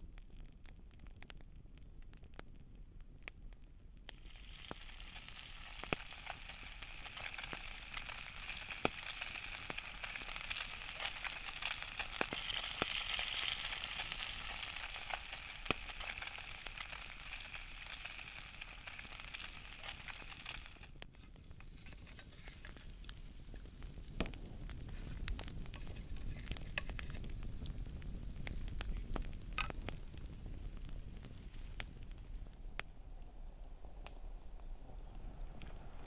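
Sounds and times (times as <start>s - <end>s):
fish sizzling in a skillet: 4.1s - 32.0s.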